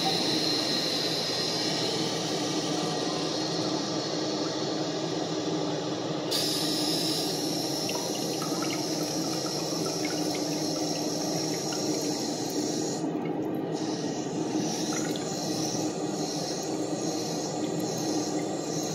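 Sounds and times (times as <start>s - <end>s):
toilet tank refilling: 6.4s - 18.9s.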